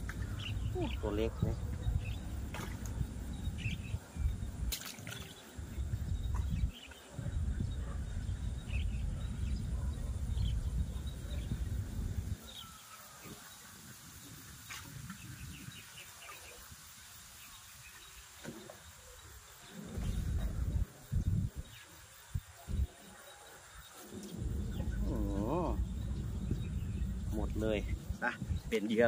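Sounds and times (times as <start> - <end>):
low uneven rumble: 0.0 - 4.7, 5.6 - 12.4, 19.6 - 21.7, 24.0 - 29.0.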